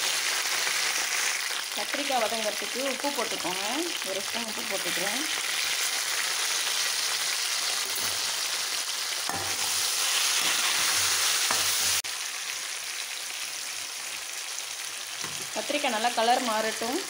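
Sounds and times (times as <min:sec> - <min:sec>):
vegetables sizzling in oil: 0:00.0 - 0:17.0
metal spatula knocking and scraping: 0:09.3 - 0:09.7.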